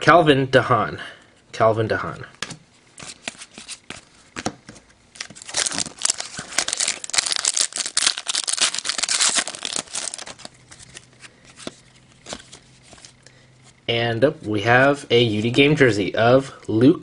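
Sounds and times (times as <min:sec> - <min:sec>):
foil wrapper crinkling and tearing: 0:05.2 - 0:11.1.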